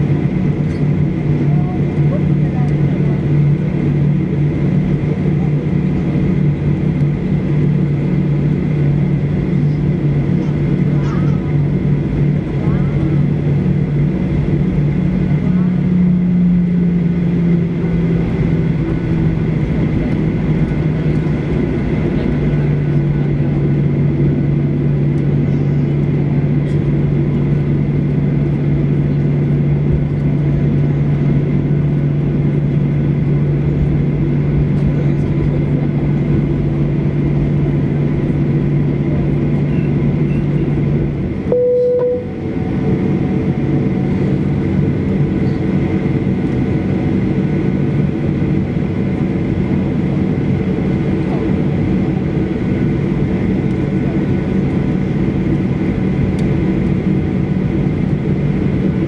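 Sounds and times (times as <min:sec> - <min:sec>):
jet engines idling: 0:00.0 - 0:59.0
short clear tone: 0:41.5 - 0:42.5.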